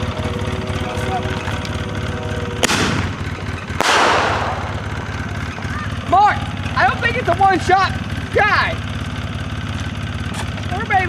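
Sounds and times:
vehicle engine idling: 0:00.0 - 0:11.0
firework bursting with crackling: 0:01.4 - 0:06.0
firework launching bang: 0:02.6 - 0:05.6.

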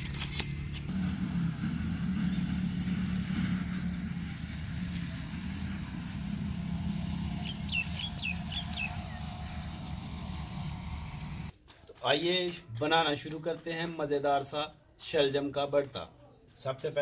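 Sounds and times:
steady low rumble: 0:00.0 - 0:11.5
bird chirping: 0:00.2 - 0:11.5.

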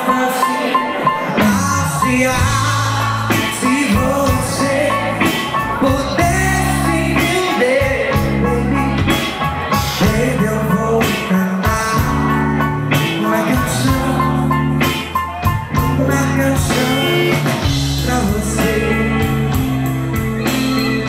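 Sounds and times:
bending melody line: 0:00.0 - 0:21.0
keyboard: 0:00.0 - 0:21.0
held bass notes: 0:01.0 - 0:21.0
drums and percussion: 0:01.4 - 0:10.4, 0:14.8 - 0:21.0.

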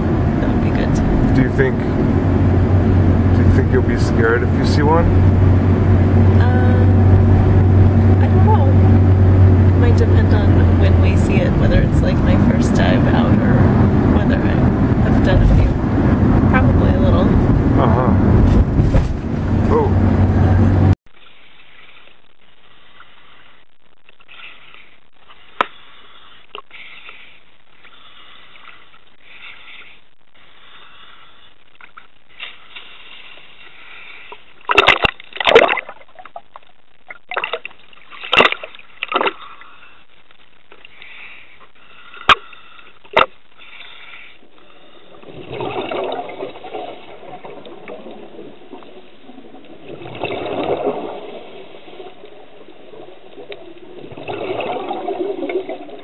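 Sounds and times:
seawater sloshing: 0:00.0 - 0:56.0
underwater bubbling: 0:00.0 - 0:56.0
loud splashes: 0:34.6 - 0:36.5, 0:45.2 - 0:56.0.

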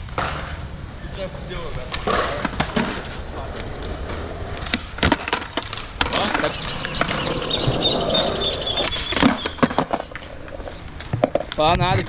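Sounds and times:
wheels rolling on concrete: 0:00.0 - 0:12.0
skateboard clacking on concrete: 0:01.8 - 0:12.0.

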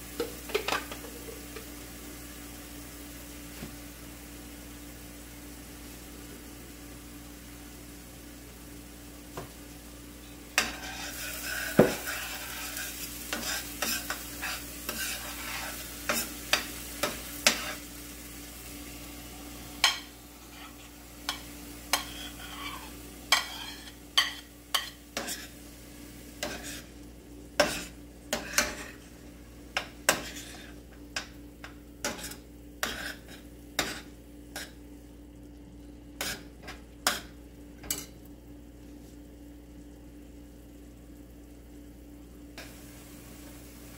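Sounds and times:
garlic and onion sizzling in oil: 0:00.0 - 0:43.9
metal spoon scraping skillet: 0:10.6 - 0:17.8, 0:19.8 - 0:25.5, 0:32.0 - 0:34.8.

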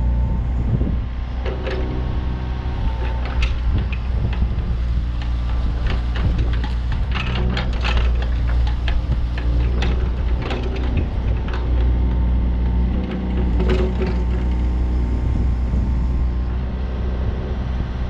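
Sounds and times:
excavator diesel engine running: 0:00.0 - 0:18.0
metallic knocks and clanks: 0:01.4 - 0:02.2, 0:02.8 - 0:15.0.

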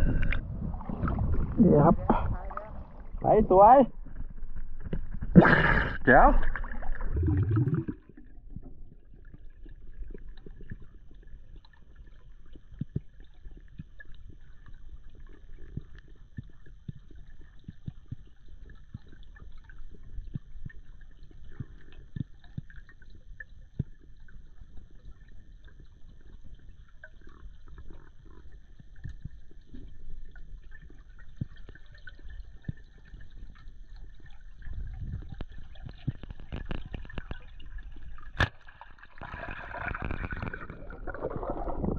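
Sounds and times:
muffled underwater rumble: 0:00.0 - 0:38.4, 0:39.2 - 0:41.9
faint clicks and crackles: 0:07.0 - 0:41.9.

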